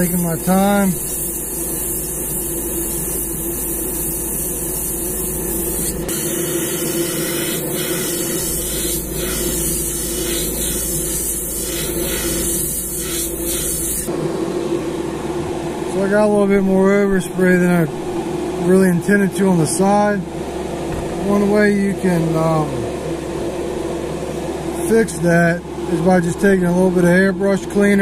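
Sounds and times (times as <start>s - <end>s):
airbrush spraying hiss: 0.0s - 14.1s
spray booth fan hum: 0.0s - 28.0s.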